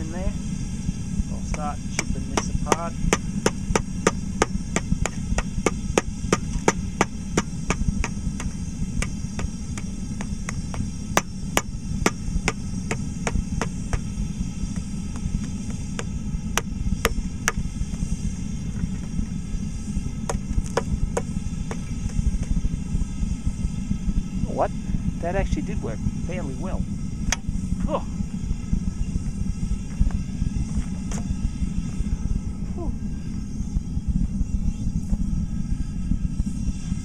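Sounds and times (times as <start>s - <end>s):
low rumble: 0.0s - 37.0s
hammer chipping plaster mould: 2.0s - 14.1s.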